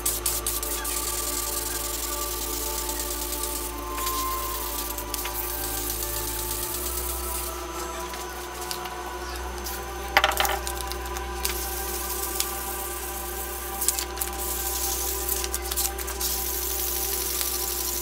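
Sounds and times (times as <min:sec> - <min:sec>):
wet sanding scratching hiss: 0:00.0 - 0:08.8.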